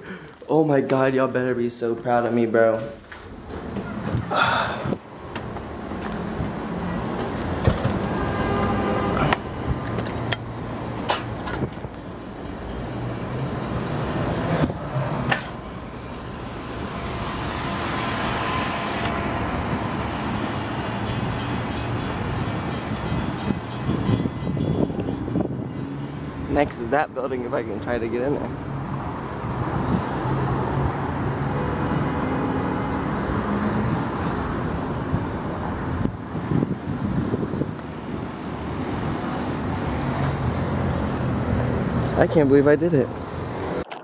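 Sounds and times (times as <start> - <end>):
city traffic below: 0.0 - 44.0
wind rumble on microphone: 22.8 - 25.9, 33.7 - 39.9.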